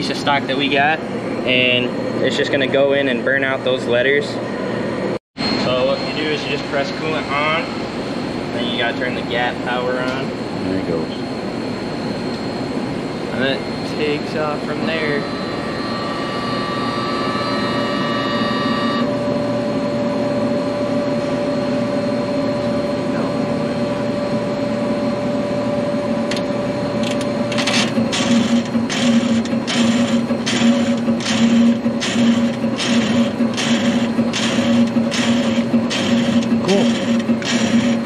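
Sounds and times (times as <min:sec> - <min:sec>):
electrical hum with buzzing tone: 0:00.0 - 0:38.0
regular pulsing: 0:05.4 - 0:19.2.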